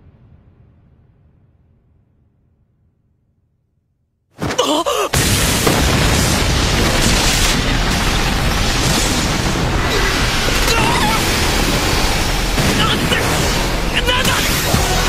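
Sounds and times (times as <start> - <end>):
rush of wind and flying debris: 4.4 - 15.0.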